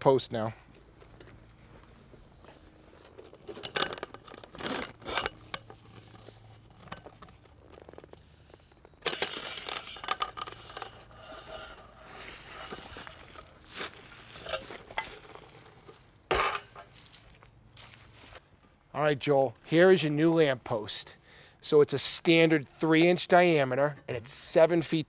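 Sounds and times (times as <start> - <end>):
metal scraping: 2.3 - 16.9
metal clanks: 3.1 - 7.4.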